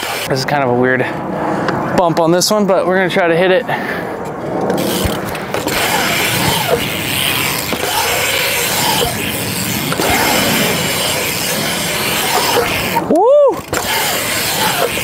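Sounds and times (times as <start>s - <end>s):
tyres rolling on concrete: 4.3s - 15.0s
short squeaks: 4.8s - 15.0s.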